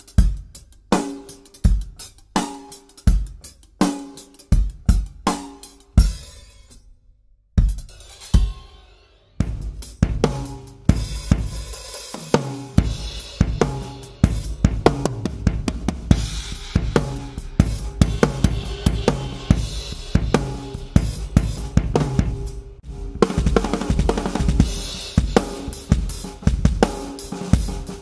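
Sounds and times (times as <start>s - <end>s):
bass drum: 7.6s - 8.0s, 9.4s - 28.0s
snare drum: 9.4s - 28.0s
cymbals struck: 16.1s - 23.1s.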